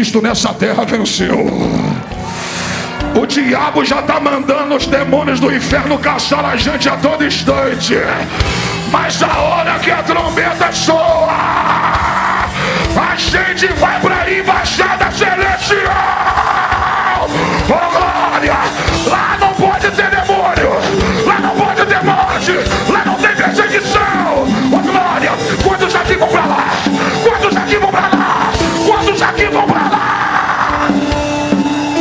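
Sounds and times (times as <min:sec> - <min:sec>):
live worship band with drums: 0:00.0 - 0:32.0
congregation shouting and cheering: 0:01.2 - 0:32.0
man yelling into a microphone: 0:08.9 - 0:30.9.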